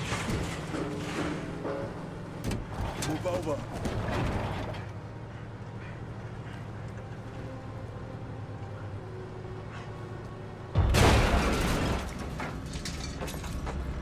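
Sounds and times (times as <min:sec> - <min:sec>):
debris clattering: 0:00.0 - 0:04.9, 0:10.8 - 0:14.0
vehicle engine running: 0:00.0 - 0:10.9
loud crash and blast: 0:10.8 - 0:12.5.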